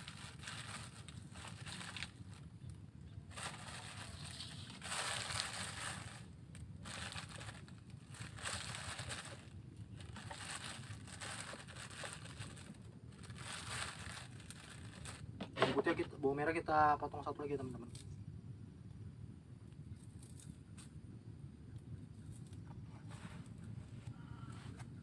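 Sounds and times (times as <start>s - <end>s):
plastic bag crinkling: 0.0s - 15.9s
faint low hum: 0.0s - 25.0s.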